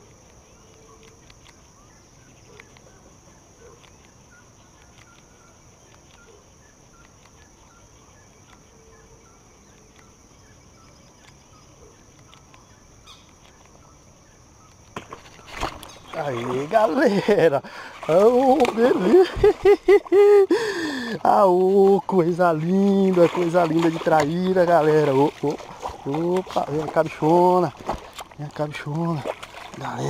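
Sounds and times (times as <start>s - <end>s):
birds calling: 0.0s - 30.0s
steady high-pitched hum: 0.0s - 30.0s
light ticks: 7.0s - 8.7s.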